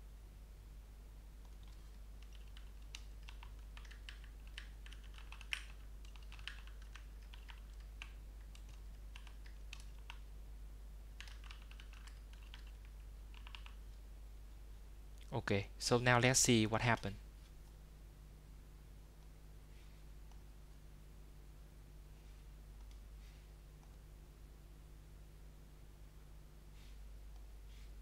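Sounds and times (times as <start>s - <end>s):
typing on computer keyboard: 1.4s - 10.2s, 11.2s - 13.8s.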